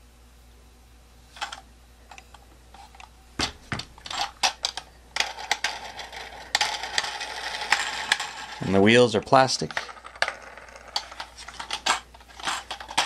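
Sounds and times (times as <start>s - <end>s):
plastic wheels rattling: 9.6s - 13.0s.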